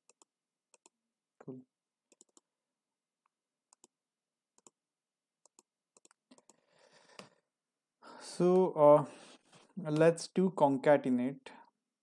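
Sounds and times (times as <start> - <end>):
computer mouse clicks: 2.1 - 2.4, 4.6 - 4.8, 5.4 - 6.6.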